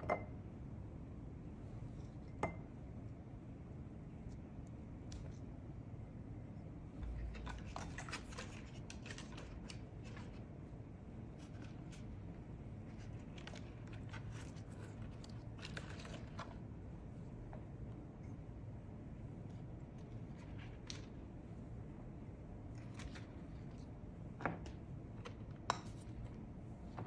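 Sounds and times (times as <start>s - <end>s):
low room hum: 0.0s - 27.0s
items clicking and rustling: 7.0s - 10.4s.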